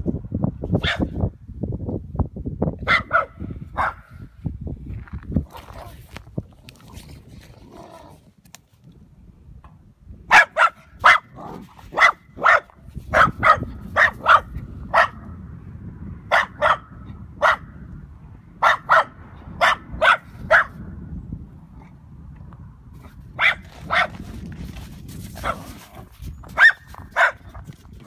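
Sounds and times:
small dog barking: 0.8 - 1.2, 2.8 - 4.2, 10.3 - 15.3, 16.3 - 17.7, 18.6 - 20.8, 23.4 - 24.2, 25.4 - 25.8, 26.6 - 27.6.

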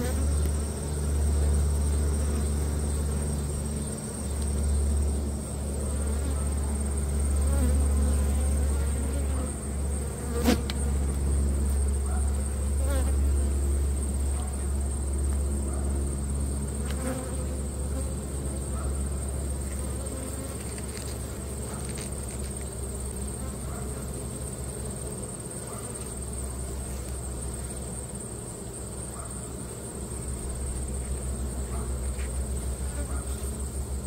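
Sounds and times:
bees buzzing: 0.0 - 14.3, 16.2 - 18.6.

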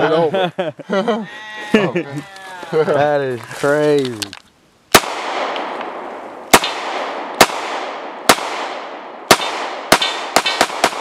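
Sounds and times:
pistol shots echoing: 4.9 - 11.0.

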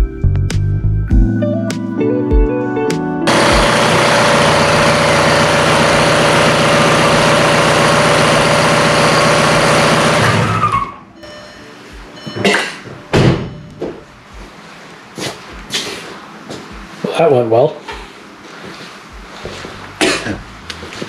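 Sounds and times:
diesel engine running: 3.3 - 11.0, 19.1 - 21.0.

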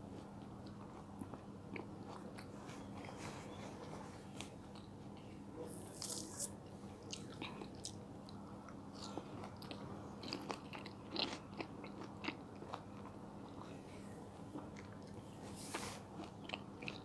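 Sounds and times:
chewing orange segments: 5.9 - 13.8, 16.1 - 17.0.

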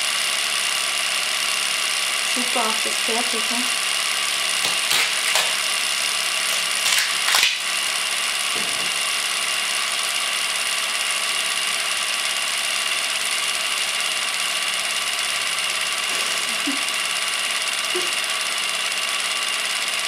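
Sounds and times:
adhesive tape ripping: 4.6 - 5.7, 6.5 - 7.7.

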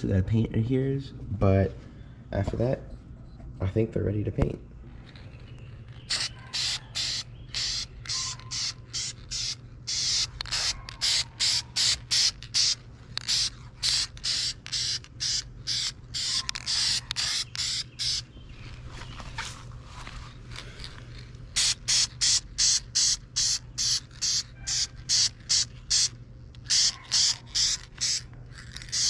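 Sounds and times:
spray paint can hissing: 6.0 - 18.3, 20.8 - 29.0.

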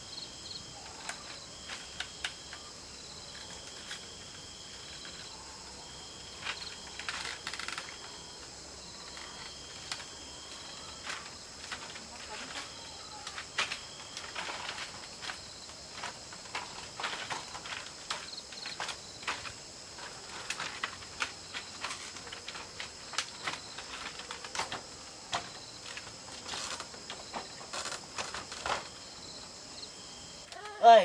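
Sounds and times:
crickets chirring: 0.0 - 31.0
bamboo panels clattering: 9.1 - 29.0.

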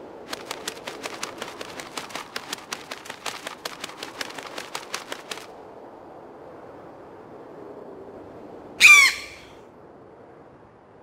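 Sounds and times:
rapid sharp clicks: 0.3 - 5.5.

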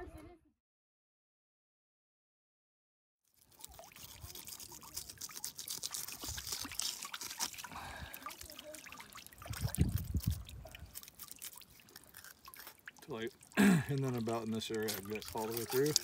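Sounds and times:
knife scraping fish scales: 3.4 - 13.4, 14.0 - 16.0.

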